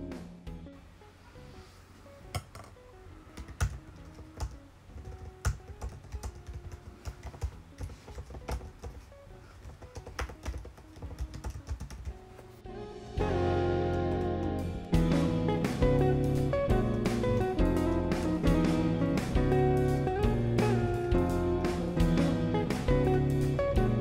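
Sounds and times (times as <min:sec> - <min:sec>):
soft background music: 0:00.0 - 0:24.0
typing on computer keyboard: 0:03.4 - 0:12.2
acoustic guitar music: 0:12.3 - 0:24.0.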